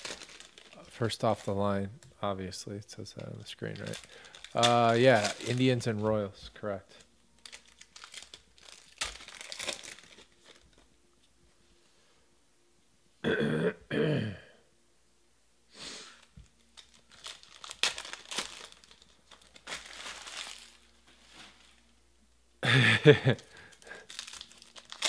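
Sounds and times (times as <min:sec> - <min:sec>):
foil wrappers crinkling: 0:00.0 - 0:01.8, 0:03.1 - 0:06.2, 0:06.8 - 0:10.9, 0:16.1 - 0:21.9, 0:23.0 - 0:25.0
cards being shuffled: 0:03.1 - 0:06.1
person coughing: 0:13.2 - 0:14.6.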